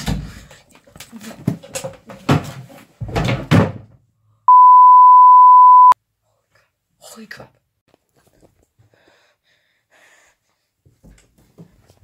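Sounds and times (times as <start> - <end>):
loud electronic beep: 4.5 - 6.0.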